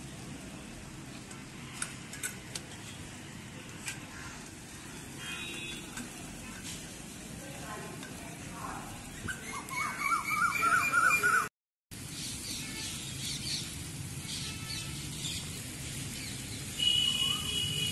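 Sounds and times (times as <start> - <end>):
meat sizzling on a grill: 4.0 - 9.8, 12.0 - 17.9.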